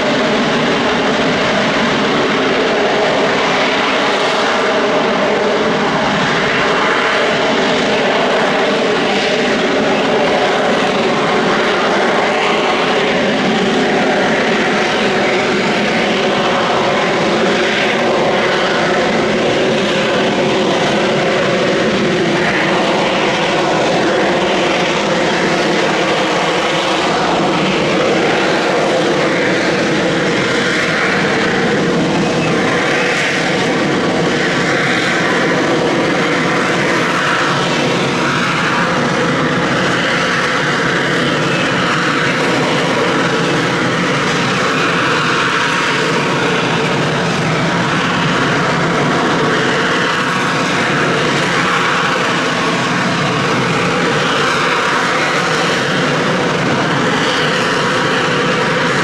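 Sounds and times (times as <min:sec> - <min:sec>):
jet engine roaring: 0:00.0 - 0:59.0.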